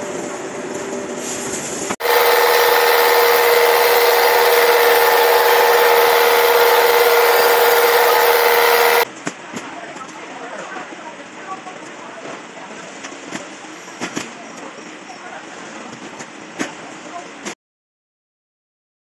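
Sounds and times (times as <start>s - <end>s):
grinding wheel whining and rasping: 2.0s - 9.0s
workshop machine noise: 2.0s - 9.1s.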